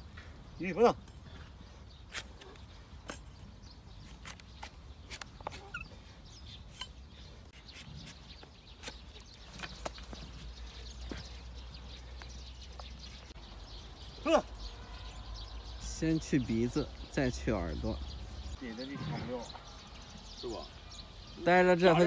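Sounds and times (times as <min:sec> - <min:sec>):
faint bird calls: 0:04.6 - 0:15.8.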